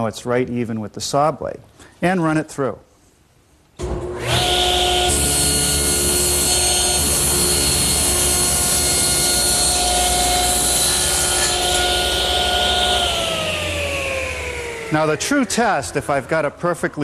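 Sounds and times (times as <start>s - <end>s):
table saw whining: 3.8s - 17.0s.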